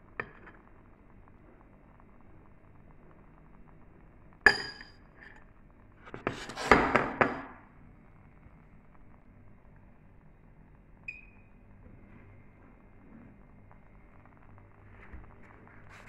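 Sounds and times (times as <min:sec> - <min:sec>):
spoon clinking glass bowl: 0:04.5 - 0:05.0.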